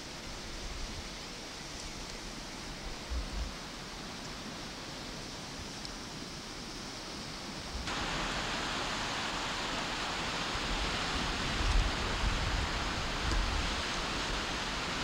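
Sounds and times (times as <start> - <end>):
wind and water rushing: 0.0 - 15.0
wind buffeting microphone: 10.6 - 15.0.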